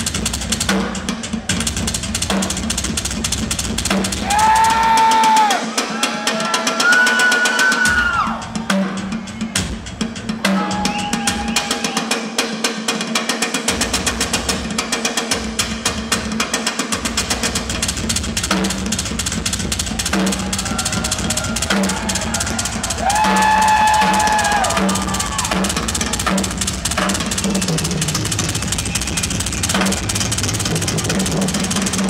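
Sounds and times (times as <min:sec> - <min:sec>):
rapid double bass drum: 0:00.0 - 0:05.6, 0:13.7 - 0:32.0
fast drum solo: 0:00.0 - 0:32.0.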